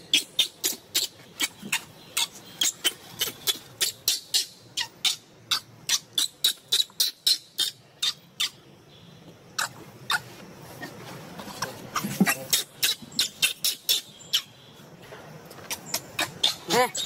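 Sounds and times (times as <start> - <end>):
baby monkey screaming: 0.0 - 8.6, 9.6 - 10.9, 11.9 - 14.5, 15.7 - 17.0.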